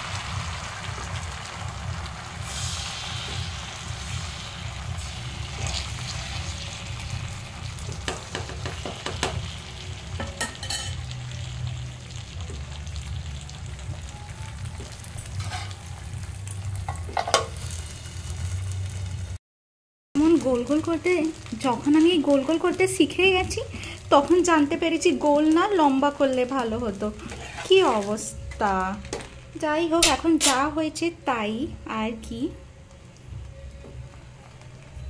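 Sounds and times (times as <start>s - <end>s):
batter sizzling in a frying pan: 0.0s - 19.4s, 20.2s - 30.8s
steel lid knocking on pan: 8.0s - 9.4s.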